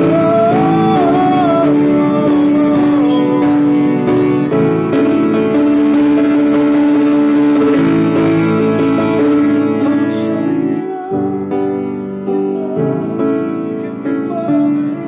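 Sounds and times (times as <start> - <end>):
man singing: 0.0 - 4.5, 8.9 - 15.0
piano chords: 0.0 - 15.0.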